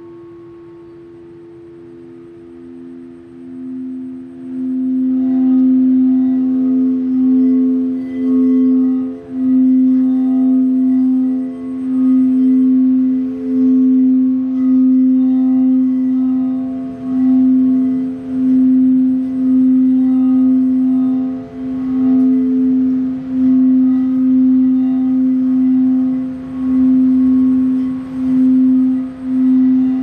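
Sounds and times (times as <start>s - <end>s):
singing bowl humming: 0.0s - 30.0s.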